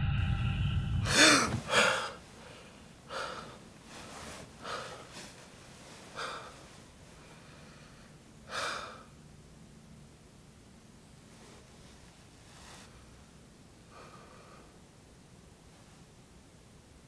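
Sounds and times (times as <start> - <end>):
man breathing heavily: 0.0 - 9.2, 13.9 - 14.8
man gasping: 0.7 - 3.6.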